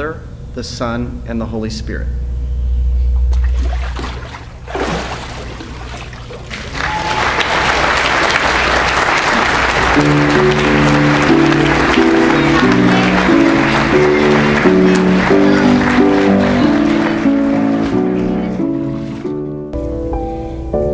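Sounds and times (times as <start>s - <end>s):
water rumbling in a tank: 3.1s - 7.1s
congregation applauding and cheering: 6.4s - 19.3s
band playing sustained chords: 9.0s - 20.5s.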